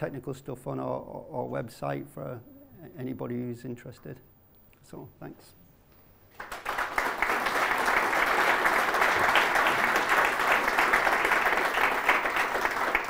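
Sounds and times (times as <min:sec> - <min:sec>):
audience applause: 0:06.4 - 0:13.0.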